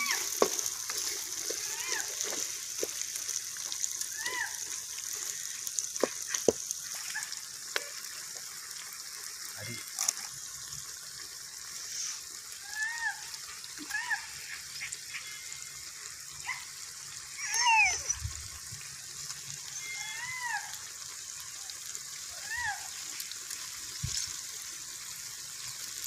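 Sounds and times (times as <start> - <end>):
animal whining calls: 17.3 - 18.3.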